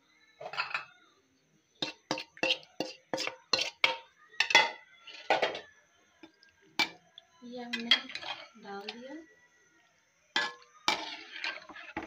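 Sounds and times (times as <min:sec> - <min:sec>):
metal spoon scraping metal pot: 0:01.8 - 0:05.6, 0:07.7 - 0:08.9, 0:10.4 - 0:12.0.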